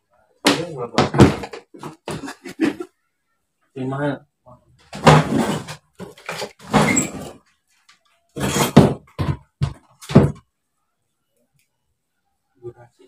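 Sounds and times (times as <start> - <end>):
knocks and scrapes: 4.8 - 7.5, 8.3 - 10.4.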